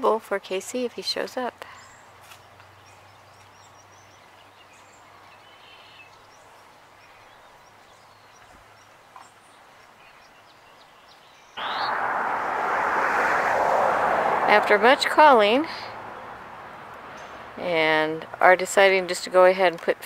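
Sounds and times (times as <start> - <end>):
distant bird chirps: 1.7 - 13.0
loud steady rushing noise: 11.6 - 16.1.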